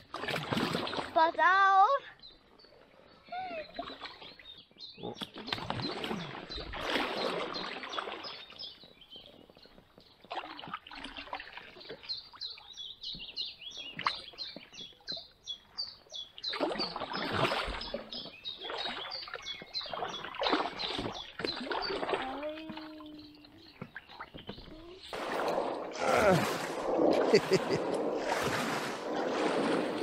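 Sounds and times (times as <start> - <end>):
kayak paddle splashing: 0.0 - 1.8, 3.7 - 9.4, 10.0 - 30.0
branches rustling along kayak: 17.0 - 30.0.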